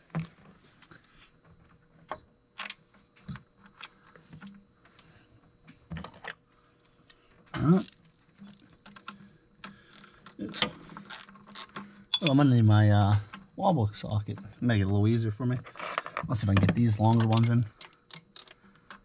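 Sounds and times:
tools clicking and tapping: 11.1 - 12.5.

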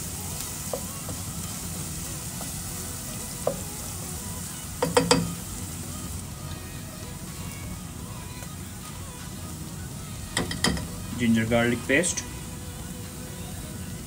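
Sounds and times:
onions sizzling in oil: 0.0 - 14.0
spatula knocking on pan: 4.8 - 5.4, 10.4 - 10.9.

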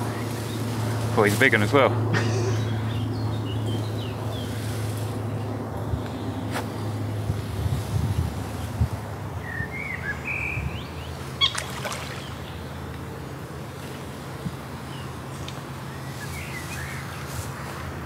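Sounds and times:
bird chirping: 9.4 - 12.7.

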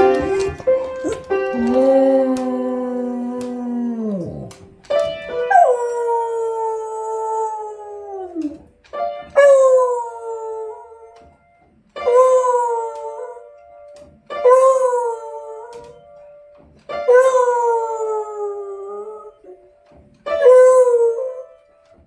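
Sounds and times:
piano notes: 0.0 - 22.0
dog howling: 1.0 - 4.7, 5.4 - 8.7, 9.4 - 11.2, 12.0 - 13.5, 14.4 - 16.0, 17.1 - 19.6, 20.3 - 21.6.

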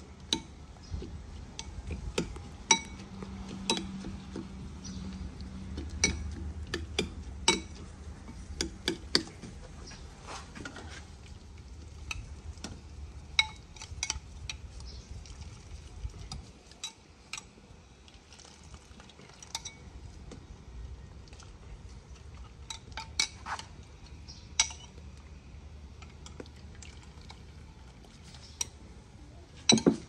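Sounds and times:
low steady rumble: 0.0 - 30.0
metal utensils clinking on pots: 5.9 - 6.4.

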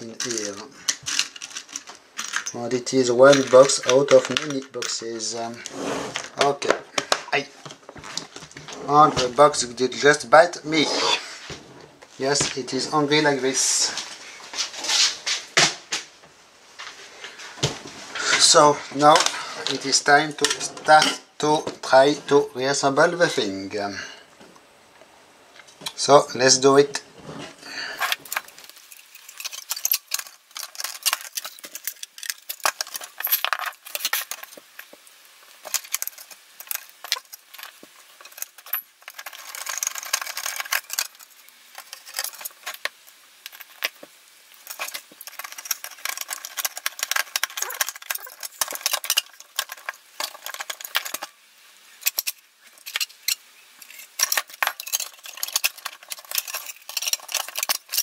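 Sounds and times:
sharp clicks and metallic clinks: 35.6 - 51.3, 52.0 - 58.0.

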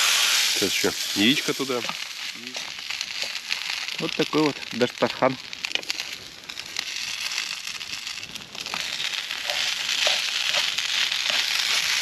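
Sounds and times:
food sizzling in a frying pan: 0.0 - 12.0
fork stirring food in a pan: 9.4 - 11.8.

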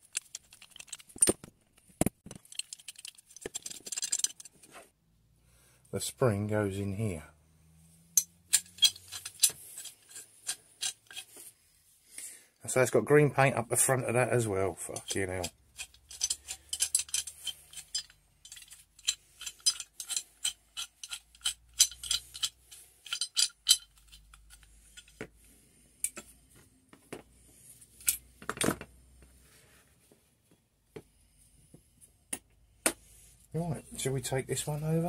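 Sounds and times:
metal clicks and clinks: 0.0 - 1.4, 2.3 - 4.6, 8.2 - 11.3, 14.9 - 25.1.

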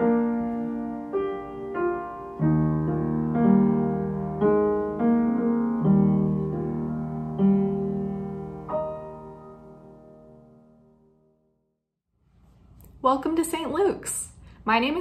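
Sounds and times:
slow piano chords: 0.0 - 11.6.

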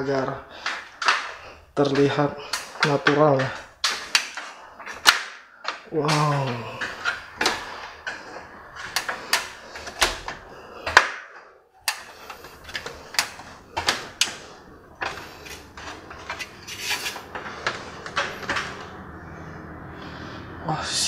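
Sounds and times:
footsteps on wooden ladder: 0.0 - 19.2.

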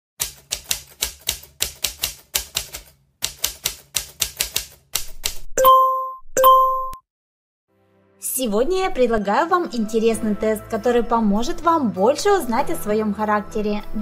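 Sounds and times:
typewriter keystroke clacks: 0.2 - 5.5.

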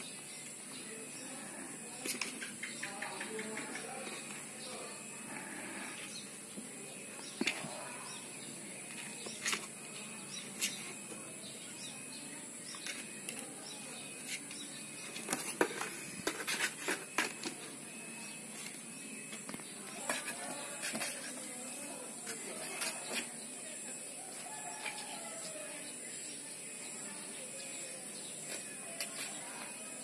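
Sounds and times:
claws scratching cardboard: 19.2 - 23.3.

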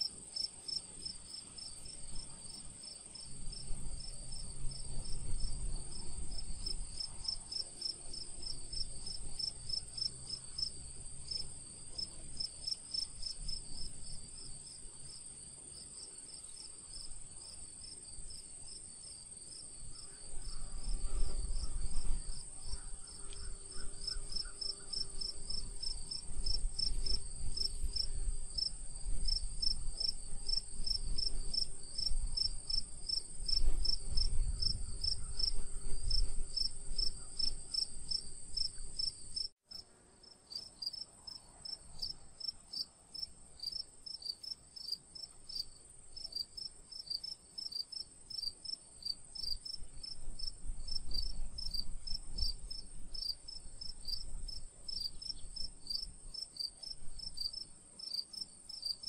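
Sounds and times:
insects buzzing: 0.0 - 39.6
rapid pulsed insect chirping: 16.4 - 39.6.

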